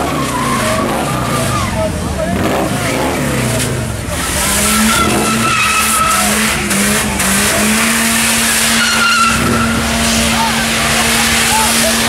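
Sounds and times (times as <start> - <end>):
engine at high revs: 0.0 - 12.0
tyre skidding and squealing: 0.0 - 12.0.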